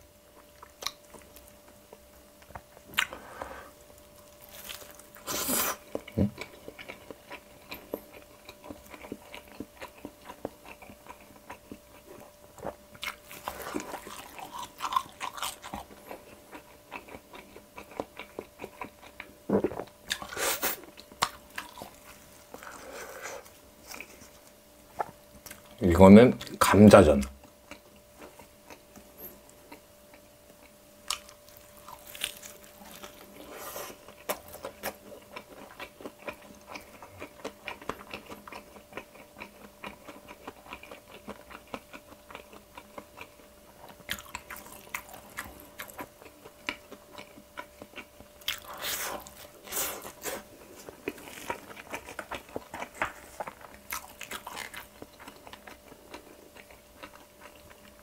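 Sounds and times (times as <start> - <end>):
crunching crispy food: 3.9 - 11.5, 13.0 - 19.2, 31.0 - 58.0.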